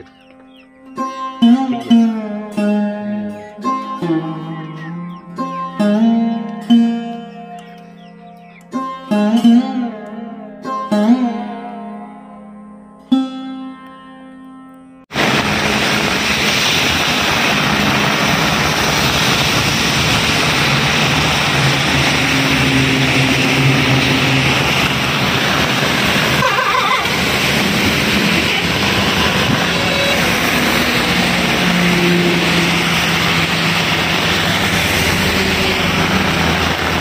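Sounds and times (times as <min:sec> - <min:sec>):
plucked sitar note: 0:00.0 - 0:15.1
heavy rain on a paved road: 0:15.1 - 0:37.0.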